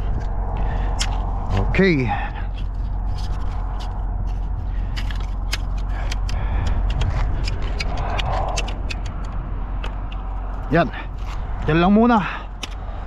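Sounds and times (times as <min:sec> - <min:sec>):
handling clicks and scrapes: 0:01.0 - 0:11.8.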